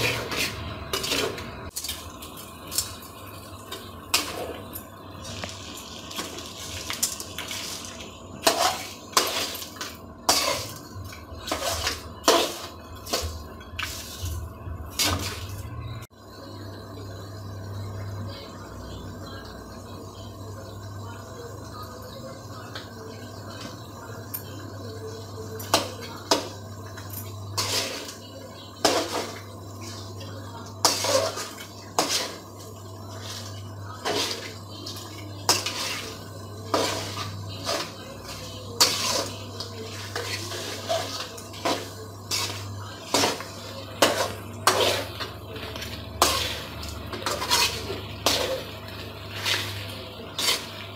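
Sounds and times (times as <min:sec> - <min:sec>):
metal spoon scraping a pan: 0:00.0 - 0:01.9, 0:07.0 - 0:15.6, 0:25.6 - 0:50.9.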